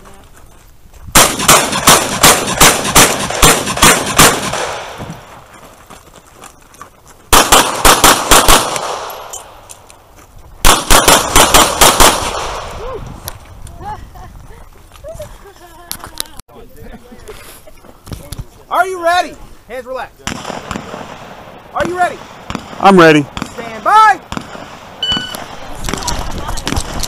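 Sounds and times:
pistol shots echoing: 1.2 - 5.0, 7.3 - 9.6, 10.6 - 12.6, 20.3 - 26.0.

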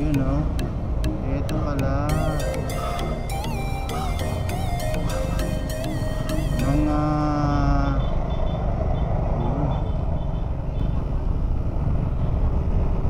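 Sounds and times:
held musical tone: 0.0 - 7.4
scooter engine and wind rumble: 6.7 - 13.0.

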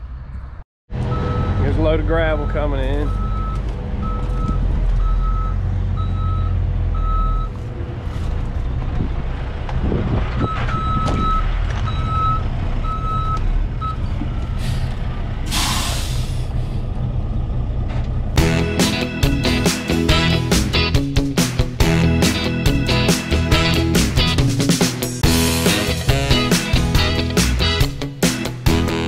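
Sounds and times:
diesel engine rumble: 0.0 - 29.0
truck reversing alarm beeps: 1.0 - 7.6, 10.4 - 14.8
air brakes hiss: 14.6 - 16.8.

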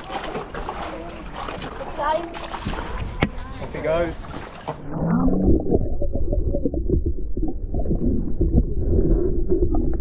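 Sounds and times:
water crackling: 0.0 - 10.0
low underwater rumble: 2.6 - 10.0.

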